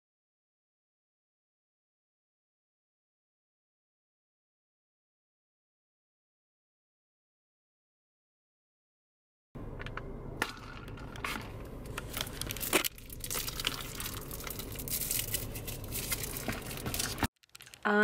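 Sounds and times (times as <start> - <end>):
steady low hum: 9.6 - 17.3
plastic cup crinkling: 10.4 - 18.0.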